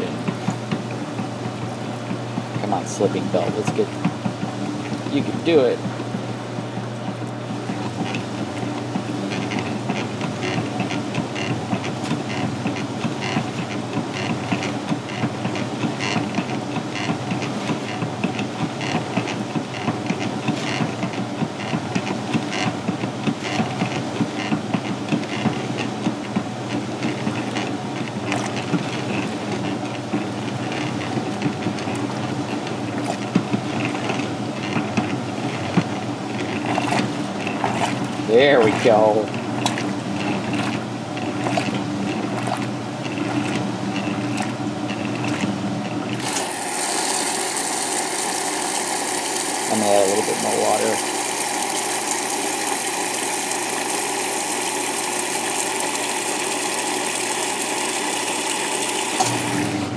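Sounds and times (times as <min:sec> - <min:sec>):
washing machine motor hum: 0:00.0 - 0:59.9
water and clothes sloshing: 0:32.9 - 0:34.0, 0:36.5 - 0:45.5.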